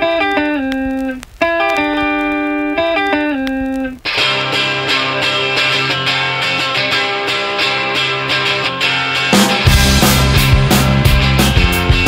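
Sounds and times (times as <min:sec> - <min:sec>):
descending guitar phrase: 0:00.0 - 0:12.0
band playing with bass line: 0:04.1 - 0:12.0.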